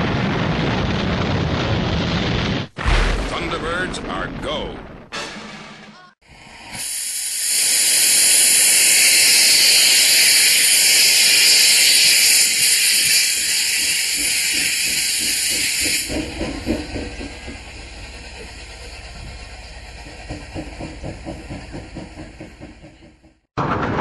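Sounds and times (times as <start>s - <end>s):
steam locomotive hissing steam: 6.4s - 23.2s
low pulses and rumble: 16.1s - 24.0s.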